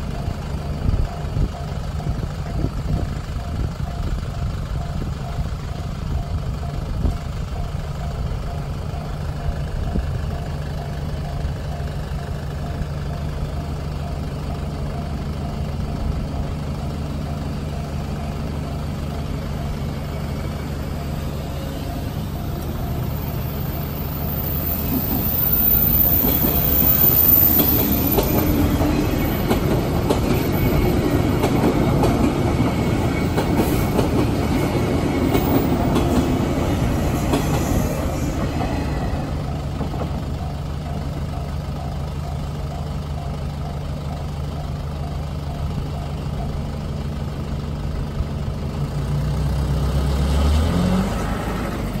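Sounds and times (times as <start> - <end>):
level crossing alarm ringing: 0.0 - 46.5
train passing: 0.0 - 52.0
vehicle engine pulling away: 46.6 - 52.0.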